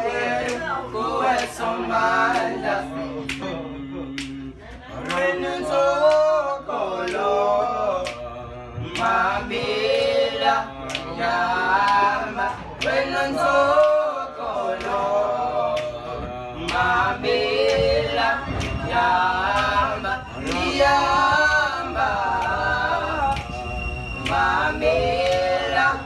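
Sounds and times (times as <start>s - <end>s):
men singing a cappella: 0.0s - 26.0s.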